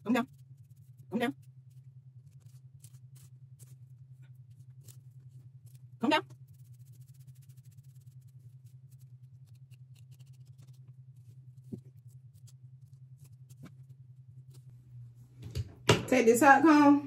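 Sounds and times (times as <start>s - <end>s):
comb scratching through hair: 0.0s - 14.7s
steady low hum: 0.0s - 17.0s.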